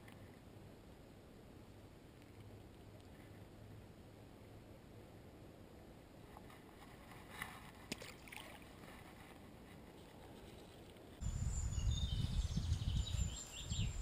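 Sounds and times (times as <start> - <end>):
faint rustling: 6.2 - 11.2
birds calling and chirping: 11.2 - 14.0
wind rumble on microphone: 11.2 - 14.0.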